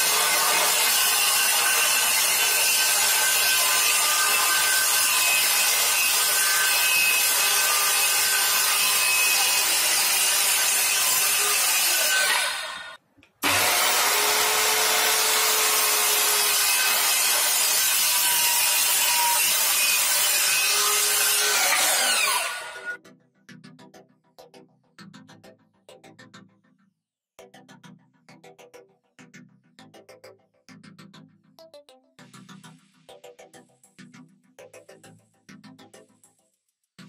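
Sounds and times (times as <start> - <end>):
circular saw cutting plywood: 0.0 - 23.0.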